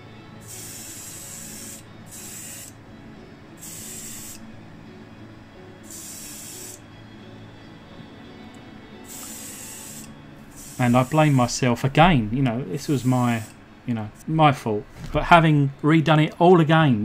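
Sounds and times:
airbrush spraying hiss: 0.4s - 2.8s, 3.6s - 4.4s, 5.8s - 6.8s, 9.0s - 11.6s, 12.8s - 13.6s.

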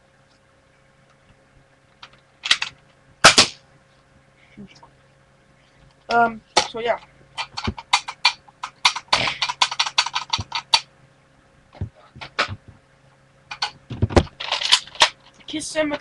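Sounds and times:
plastic clicking and rattling: 2.0s - 2.8s, 7.4s - 10.9s, 13.5s - 15.4s.

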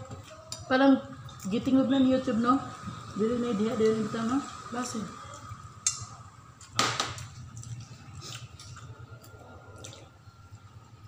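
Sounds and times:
wet chewing: 7.2s - 10.7s
squishy mouth and finger noises: 7.4s - 10.6s.

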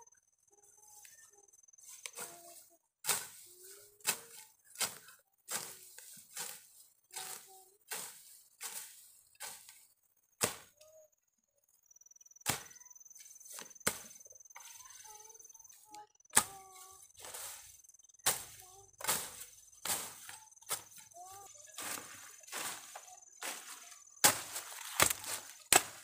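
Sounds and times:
hand tool chopping ground: 2.0s - 10.8s, 12.4s - 12.8s, 13.5s - 15.2s, 16.3s - 26.0s.

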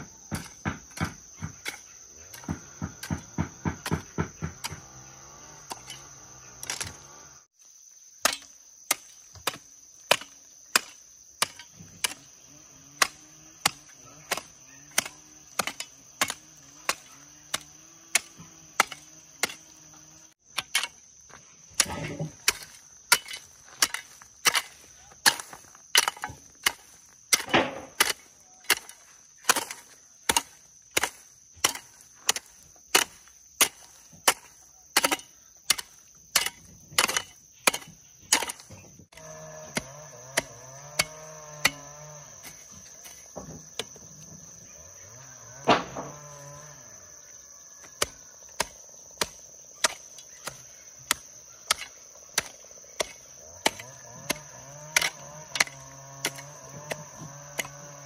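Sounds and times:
sharp chopping blows: 45.6s - 46.3s.

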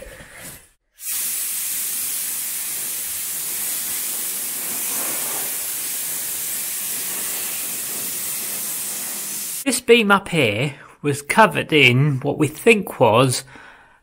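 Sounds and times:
abrasive blasting gun hissing: 0.9s - 9.7s.

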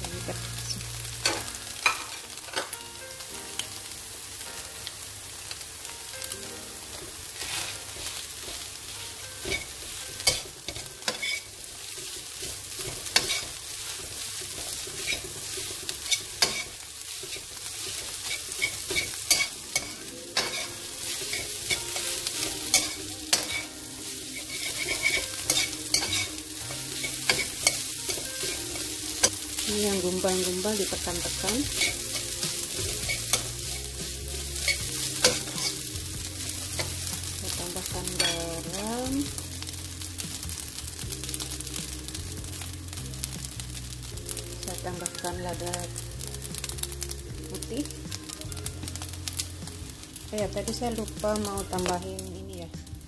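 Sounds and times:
rice sizzling in a wok: 0.0s - 53.0s
metal spatula scraping a wok: 7.4s - 8.6s, 9.4s - 37.2s, 38.0s - 38.4s.

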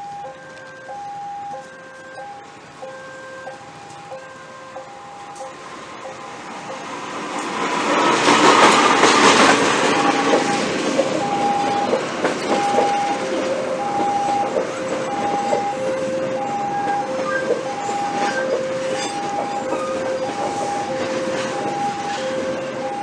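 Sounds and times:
diesel locomotive passing: 0.0s - 23.0s
level-crossing alarm beeping: 0.0s - 23.0s
train wheels clattering over rail joints: 5.4s - 15.8s, 16.5s - 23.0s.

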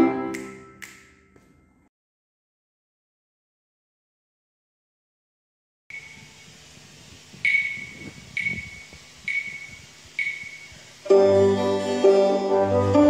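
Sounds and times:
sharp clicks with ringing tone: 7.5s - 10.7s
violins playing pizzicato: 11.1s - 13.0s.

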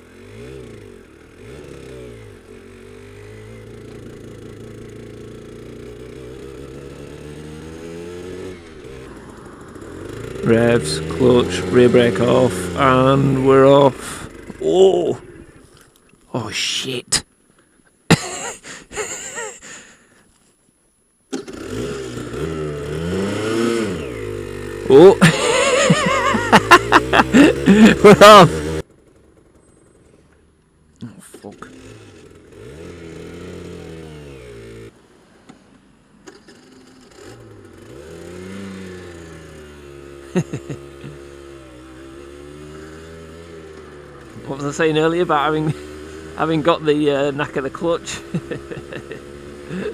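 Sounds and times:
motorcycle two-stroke engine revving: 0.0s - 15.5s, 21.3s - 30.2s, 31.3s - 35.0s, 36.3s - 49.9s
person groaning and sighing: 18.1s - 20.1s, 25.0s - 28.5s, 49.7s - 49.9s.

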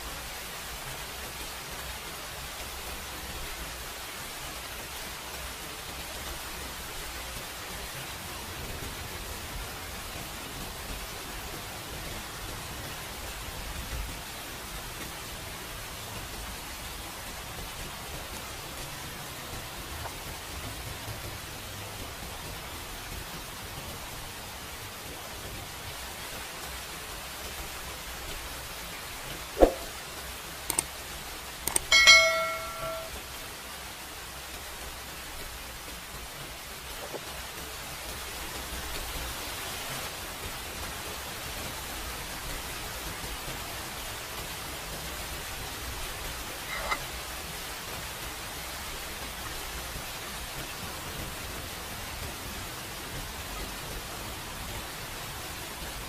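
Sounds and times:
background hiss: 0.0s - 56.0s
sharp knock: 29.6s - 29.9s.

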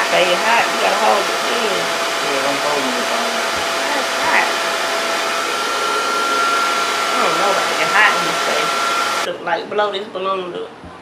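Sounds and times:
hair dryer running: 0.0s - 9.3s.

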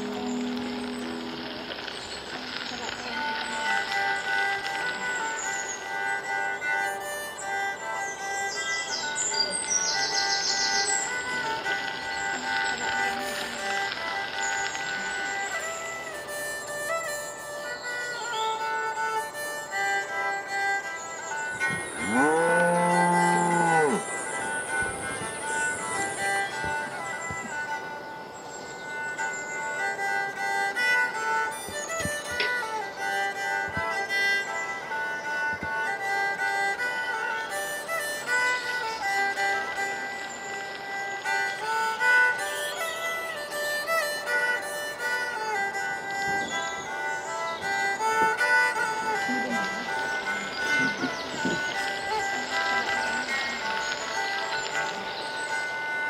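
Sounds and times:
background music with violin: 0.0s - 56.0s
fiddle melody: 0.0s - 56.0s
cow mooing: 22.0s - 24.1s.

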